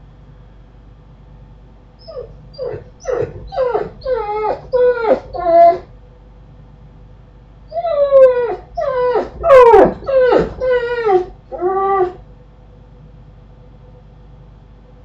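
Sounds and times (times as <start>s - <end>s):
animal whining cries: 2.0s - 5.9s, 7.7s - 12.2s.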